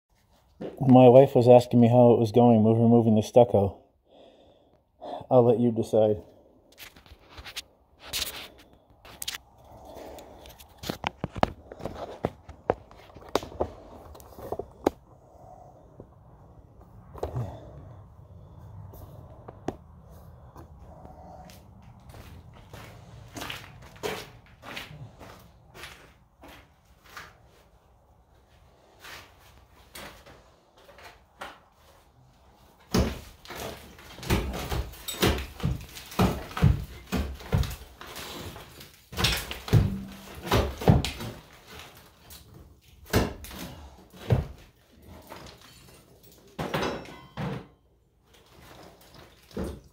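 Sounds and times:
footsteps crunching: 20.1s - 27.7s
stucco cracking and thudding: 32.8s - 47.0s.

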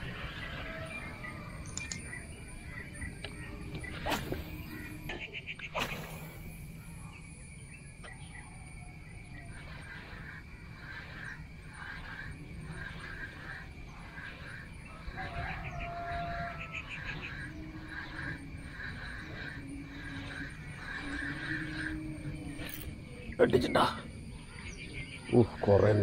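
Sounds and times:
rooster crowing: 14.8s - 18.6s.

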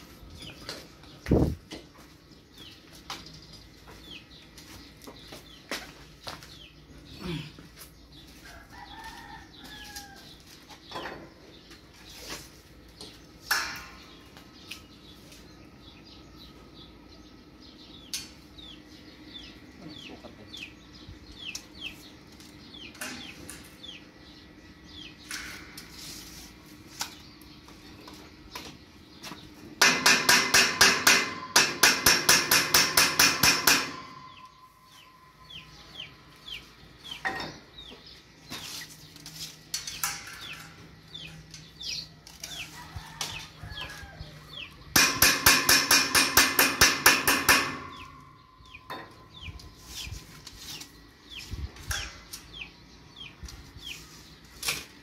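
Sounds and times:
chickens clucking: 18.6s - 20.8s.

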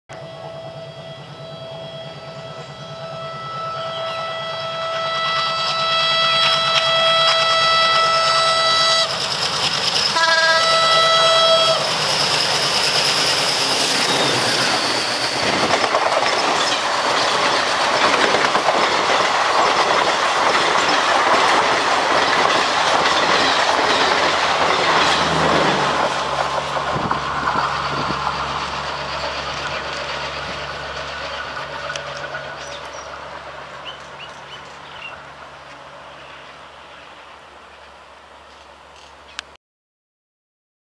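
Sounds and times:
locomotive air horn blasts: 0.1s - 9.2s, 10.1s - 11.9s
train wheels clacking over rails: 5.4s - 36.2s.

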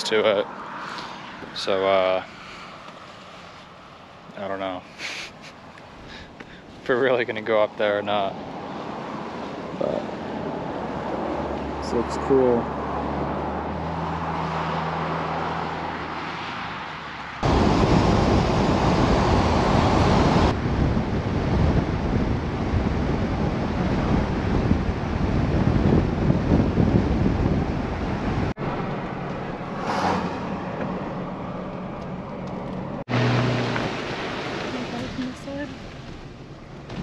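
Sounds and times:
vehicle road noise: 0.0s - 37.0s
wind on microphone: 17.4s - 28.5s
waves: 33.1s - 37.0s.

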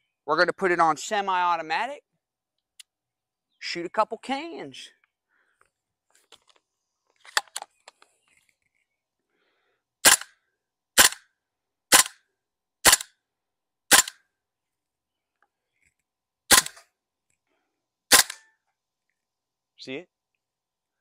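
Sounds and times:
airsoft rifle shots: 10.0s - 10.4s, 11.0s - 11.3s, 11.9s - 12.2s, 12.8s - 13.1s, 13.9s - 14.2s, 16.5s - 16.9s, 18.1s - 18.5s.

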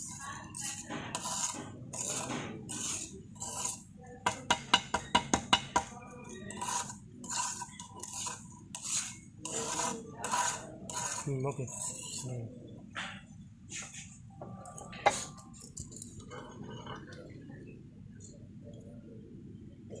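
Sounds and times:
spatula scraping wet soil in cup: 0.0s - 5.1s, 6.3s - 12.4s.

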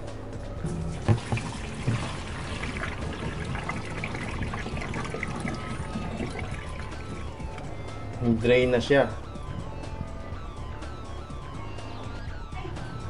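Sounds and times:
water trickling from drain pipe: 0.6s - 8.0s
knocks: 0.7s - 2.2s.

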